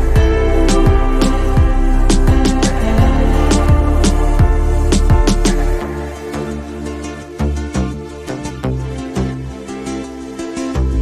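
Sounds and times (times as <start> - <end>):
background music with low bass: 0.0 - 11.0.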